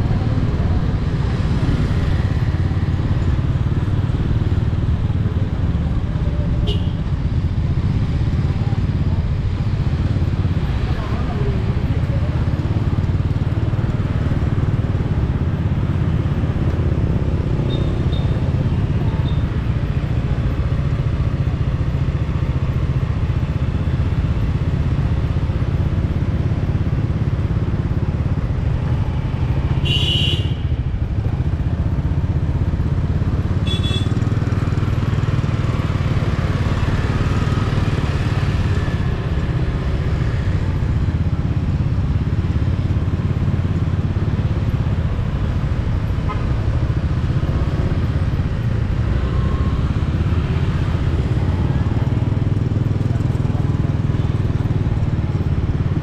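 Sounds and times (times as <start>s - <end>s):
motorcycle engine running: 0.0s - 56.0s.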